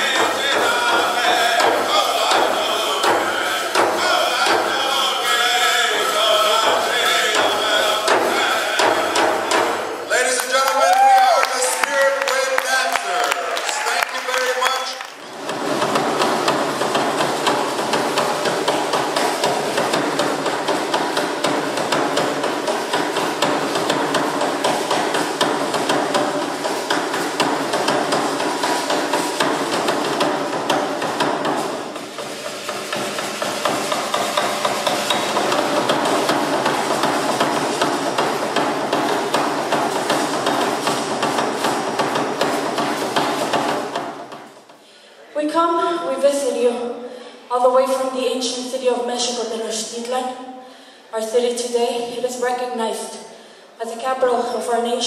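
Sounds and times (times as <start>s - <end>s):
ankle rattles shaking: 15.2s - 44.8s.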